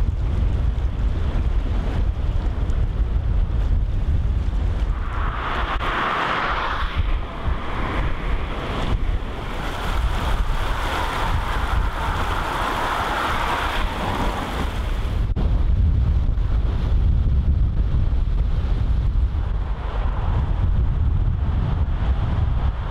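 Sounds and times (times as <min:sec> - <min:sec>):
wind rumbling on microphone: 0:00.0 - 0:22.9
river rushing and churning: 0:04.9 - 0:15.4.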